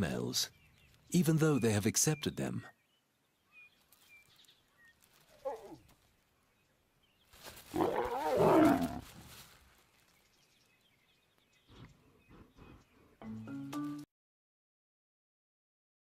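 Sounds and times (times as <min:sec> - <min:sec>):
lions growling and snarling: 0:07.7 - 0:09.0.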